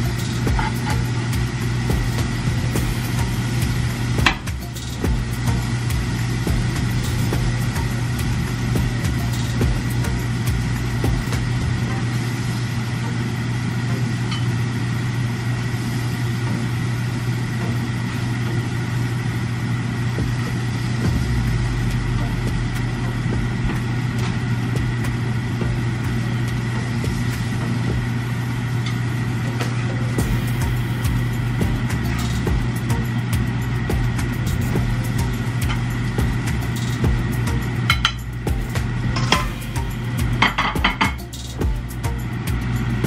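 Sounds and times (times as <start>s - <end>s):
shrimp frying in a pan: 0.0s - 21.0s, 21.7s - 29.5s
range hood fan humming: 0.0s - 43.0s.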